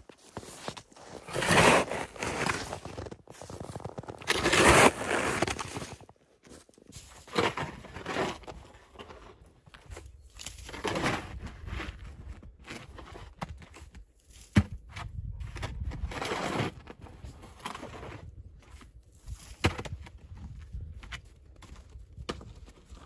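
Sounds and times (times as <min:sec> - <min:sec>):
shovel blade scraping path: 0:00.2 - 0:06.0, 0:06.9 - 0:09.5, 0:10.3 - 0:13.4, 0:15.7 - 0:18.4
snow shovel scraping crusty snow: 0:00.2 - 0:06.0, 0:06.9 - 0:09.3, 0:16.1 - 0:18.3.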